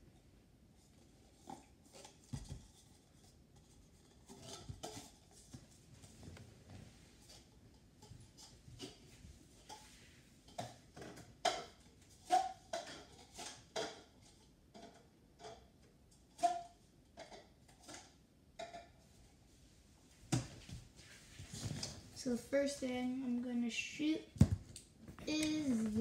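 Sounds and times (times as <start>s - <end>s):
cups clicking and tapping: 10.5s - 14.2s.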